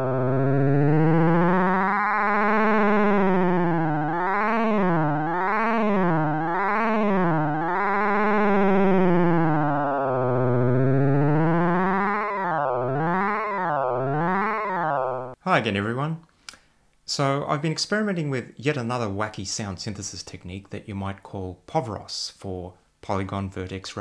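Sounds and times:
buzzy synthesized tone: 0.0s - 15.4s.

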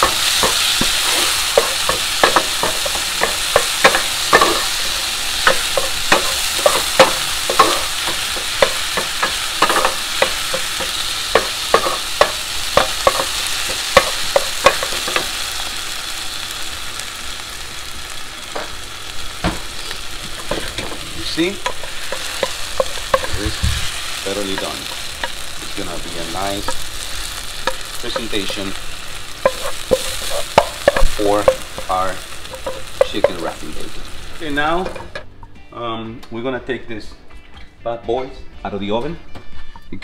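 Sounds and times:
sauce sizzling in a frying pan: 0.0s - 35.2s
utensil scraping a pan: 19.8s - 33.8s.

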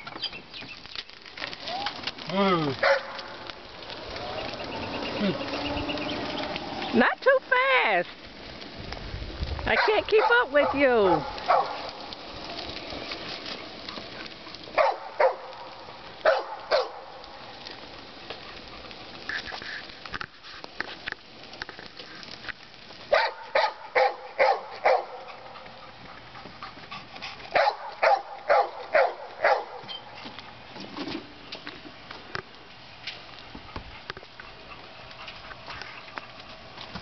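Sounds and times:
dog barking: 2.8s - 3.2s, 9.7s - 11.8s, 14.8s - 15.5s, 16.2s - 17.0s, 23.1s - 25.4s, 27.5s - 29.8s.

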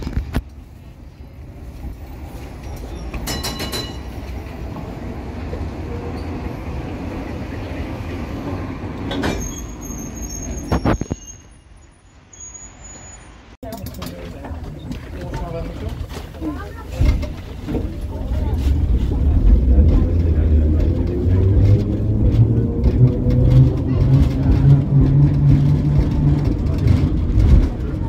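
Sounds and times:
tram rolling past: 0.0s - 28.0s
wheels clacking on rail joints: 1.8s - 6.5s, 13.6s - 28.0s
high wheel squeal: 9.1s - 13.6s.

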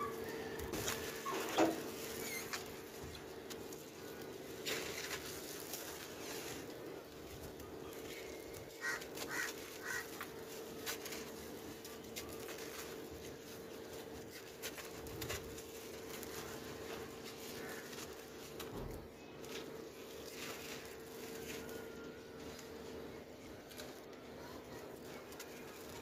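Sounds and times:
faint hum: 0.0s - 26.0s
bird calling: 8.8s - 10.2s.

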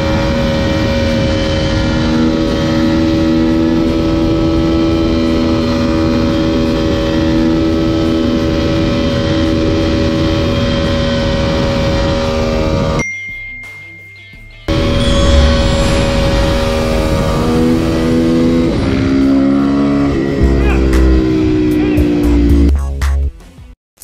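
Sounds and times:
wind rushing over microphone: 0.0s - 5.6s, 14.7s - 20.2s
motorcycle engine at high rpm: 0.0s - 13.0s, 14.7s - 22.7s.

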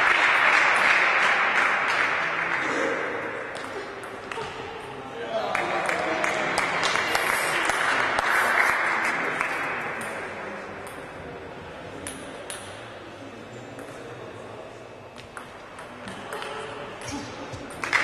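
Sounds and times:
spectators clapping and calling: 0.0s - 2.8s, 5.4s - 10.2s, 17.8s - 18.0s.

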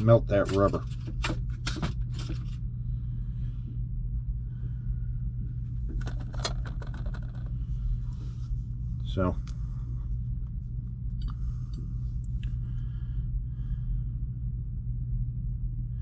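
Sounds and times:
low hum: 0.0s - 16.0s
small items clicking and tapping: 5.9s - 7.6s.

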